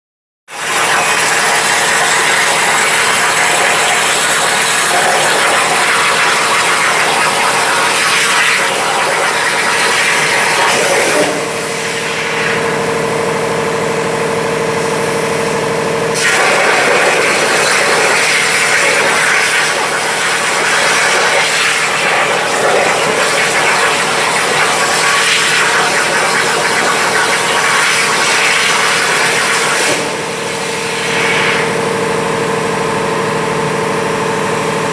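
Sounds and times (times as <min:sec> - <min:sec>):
plasma torch hissing: 0:00.8 - 0:12.7, 0:16.2 - 0:31.8
steady hum: 0:02.6 - 0:34.9.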